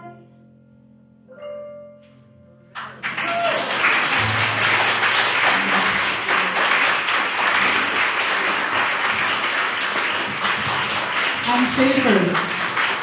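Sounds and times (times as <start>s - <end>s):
audience applause: 2.8s - 13.0s.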